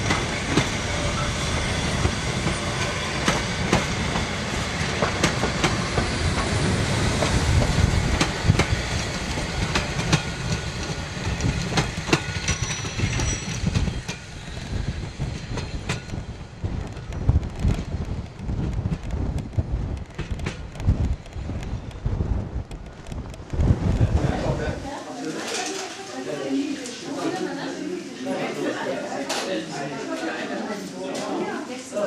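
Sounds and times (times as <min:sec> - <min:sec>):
train wheels clicking over rail joints: 0:00.0 - 0:23.6
low rumble of train: 0:00.0 - 0:25.1.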